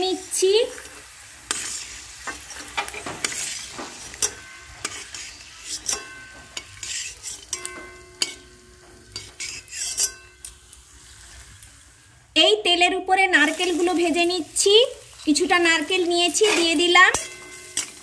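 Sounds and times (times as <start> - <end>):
oil sizzling faintly: 0.0 - 12.6, 13.2 - 18.0
metal spatula scraping a pan: 0.7 - 12.0, 15.1 - 18.0
pan ringing: 16.5 - 18.0.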